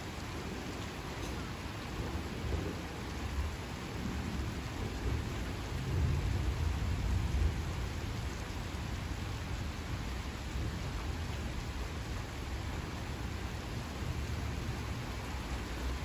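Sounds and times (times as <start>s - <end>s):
steady rain falling: 0.0s - 16.0s
thunder rumbling: 1.8s - 9.6s.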